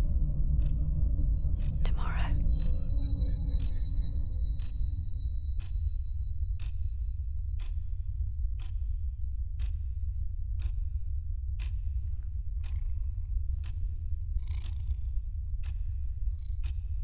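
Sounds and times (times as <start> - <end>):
low steady rumble: 0.0 - 17.0
clock ticking: 0.6 - 0.8, 1.4 - 8.0, 8.6 - 9.0, 9.6 - 10.0, 10.6 - 11.0, 11.6 - 12.0, 15.6 - 16.9.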